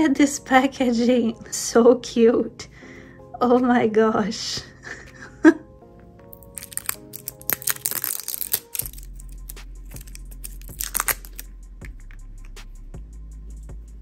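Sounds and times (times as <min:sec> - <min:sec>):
soft background music: 0:00.0 - 0:14.0
plastic wrap crackling and tearing: 0:06.3 - 0:11.5.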